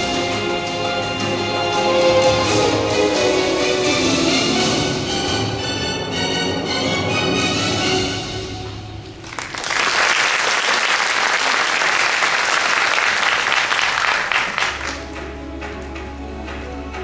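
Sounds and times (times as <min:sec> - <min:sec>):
music: 0:00.0 - 0:09.4, 0:14.0 - 0:17.0
audience applause: 0:09.2 - 0:15.1.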